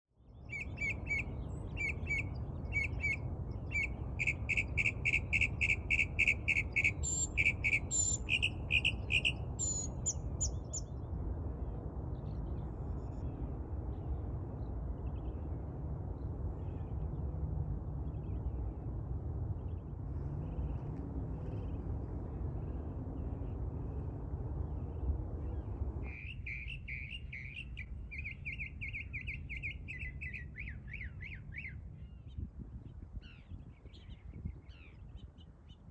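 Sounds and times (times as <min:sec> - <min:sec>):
mockingbird singing: 0:00.5 - 0:10.8, 0:26.1 - 0:31.8
steady low rumble: 0:01.3 - 0:35.9.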